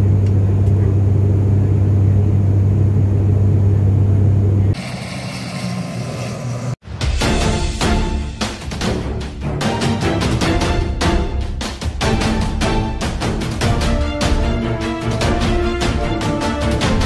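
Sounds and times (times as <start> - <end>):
vehicle engine drone: 0.0 - 6.8
music: 6.8 - 17.0.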